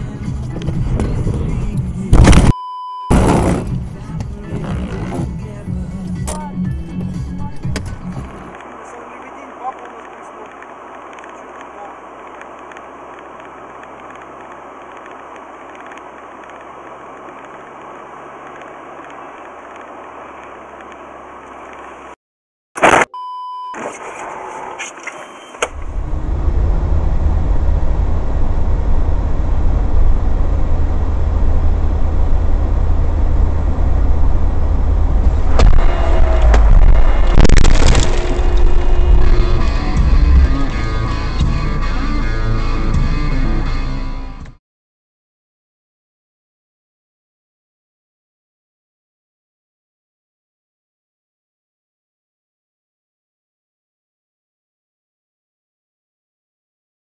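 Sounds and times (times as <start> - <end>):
car road and engine hum: 0.0 - 22.2, 23.8 - 44.6
brief tone: 2.5 - 3.2, 23.0 - 23.8, 25.1 - 25.6
sharp loud noises: 35.5 - 41.0.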